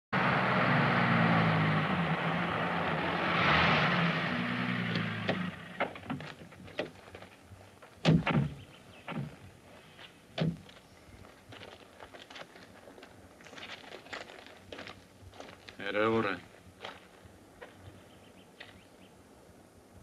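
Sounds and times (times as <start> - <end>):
road noise: 0.1 - 20.0
car engine running: 0.2 - 6.8
car doors opening and slamming: 8.0 - 9.4.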